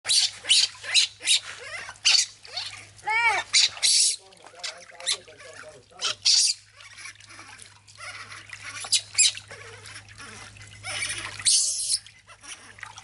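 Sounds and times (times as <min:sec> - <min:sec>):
water sloshing in plastic basin: 0:00.1 - 0:13.0.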